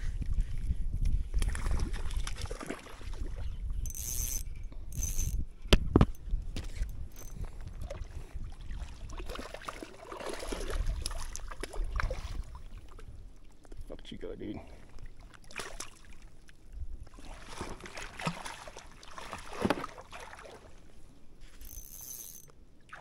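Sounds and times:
wind rumbling on microphone: 0:00.0 - 0:09.6, 0:10.4 - 0:14.0.

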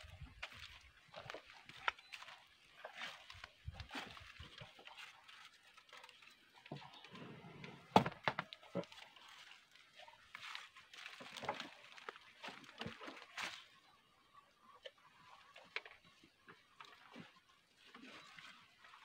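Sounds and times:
knocks and rustles in wooden pen: 0:00.1 - 0:13.8.

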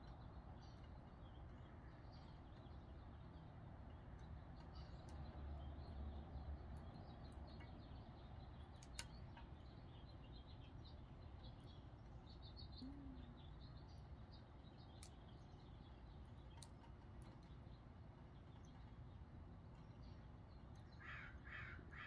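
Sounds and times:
tiny ticks: 0:00.0 - 0:22.0
faint high chirps: 0:12.5 - 0:14.2.

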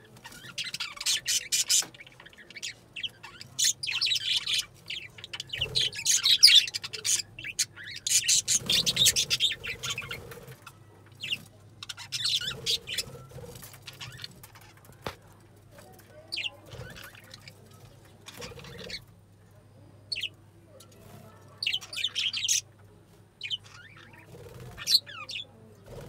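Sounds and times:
budgerigars chattering: 0:00.3 - 0:10.4, 0:11.2 - 0:14.4, 0:18.3 - 0:19.0, 0:21.6 - 0:22.6.

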